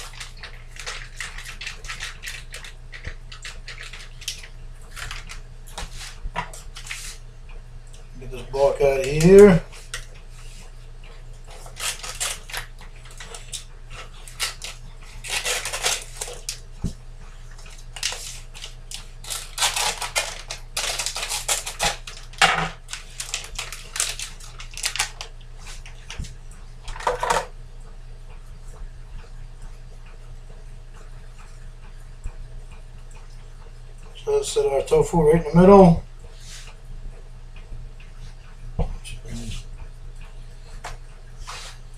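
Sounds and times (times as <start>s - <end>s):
plastic packaging crinkling: 11.6s - 16.6s, 17.7s - 25.8s.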